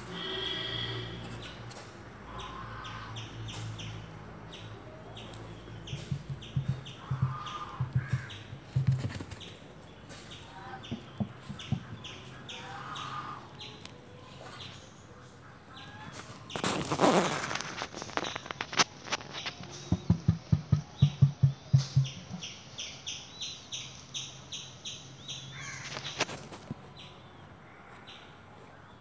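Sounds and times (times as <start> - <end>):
harsh crow-like caws: 0.0 - 1.3, 2.3 - 3.3, 6.8 - 8.5, 25.5 - 26.0, 27.6 - 28.3
small birds chirping: 0.2 - 29.0
low thumps: 5.9 - 9.3, 19.7 - 22.6.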